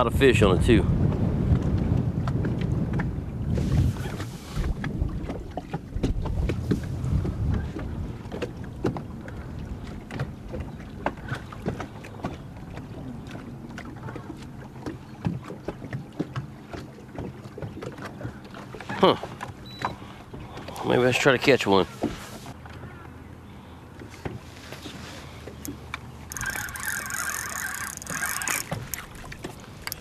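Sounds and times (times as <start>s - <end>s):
wind buffeting microphone: 0.0s - 14.9s
low water wash: 0.0s - 30.0s
small waves lapping on boat hull: 0.0s - 30.0s.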